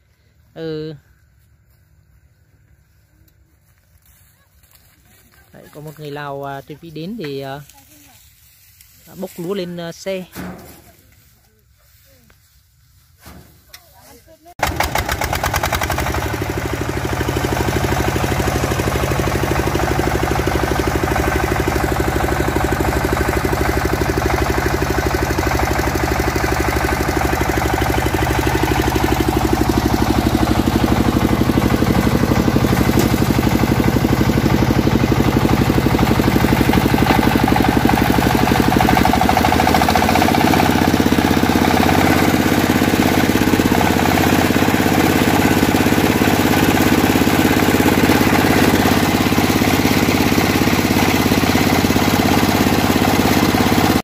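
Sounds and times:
diesel engine running steadily: 14.6 - 54.0.

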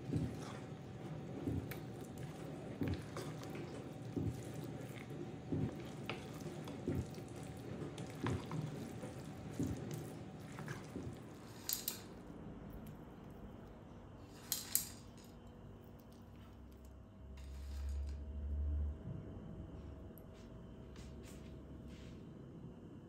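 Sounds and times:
wet squelching stirring: 0.0 - 13.6.

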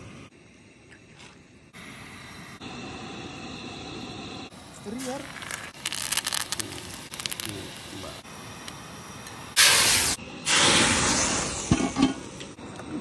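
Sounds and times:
hot oil sizzling in a ladle: 5.0 - 8.6, 9.2 - 12.3.

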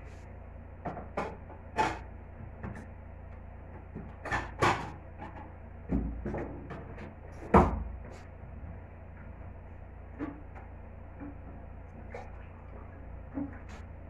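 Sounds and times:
kitchen knocks and clunks: 7.5 - 7.9.

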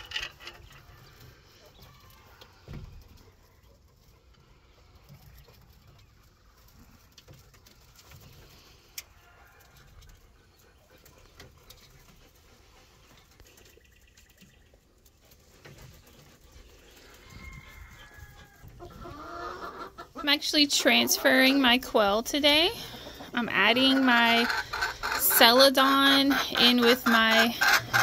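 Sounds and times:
birds tapping and pecking: 0.0 - 20.2, 22.3 - 28.0
quail chirping and calling: 16.2 - 21.9, 22.5 - 28.0.

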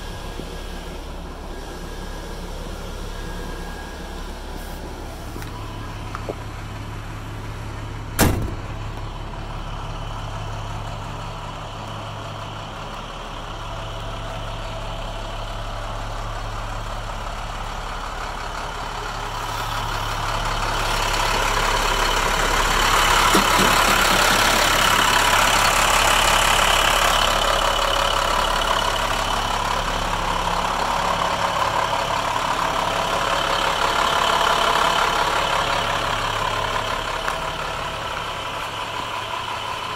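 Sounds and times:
diesel truck engine idling: 0.0 - 39.9
door slamming shut: 8.2 - 8.8.

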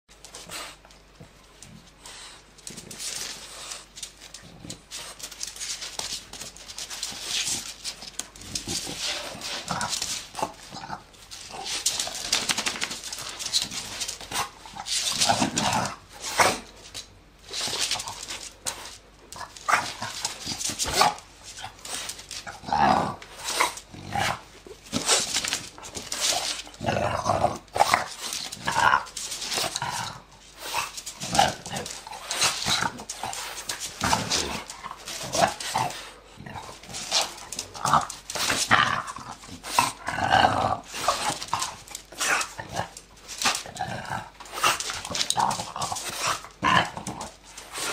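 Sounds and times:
dog growling and barking: 22.4 - 24.5, 26.6 - 47.9.

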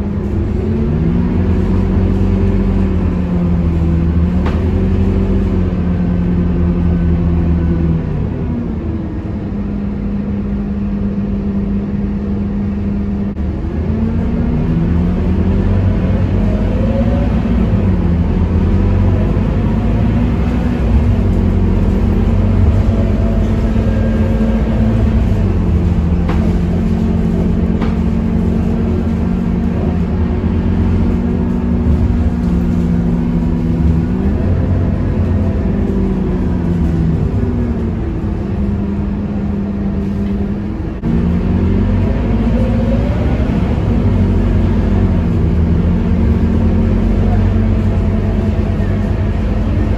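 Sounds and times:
bus diesel engine running: 0.0 - 49.9.

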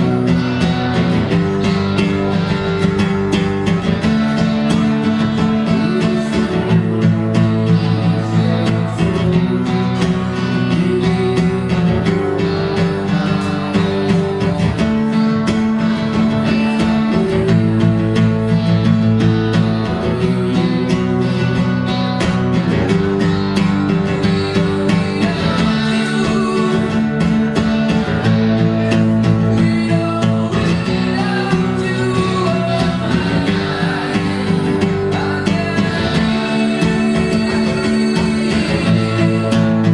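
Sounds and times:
acoustic guitar playing: 0.0 - 39.9
second guitar playing: 0.0 - 39.9.

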